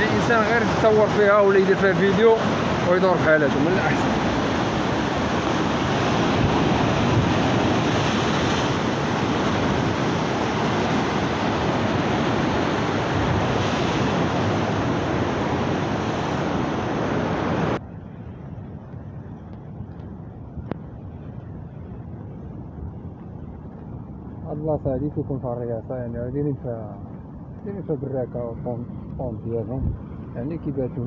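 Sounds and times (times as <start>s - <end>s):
sea surf breaking against rocks: 0.0s - 17.8s
wind on microphone: 0.0s - 31.0s.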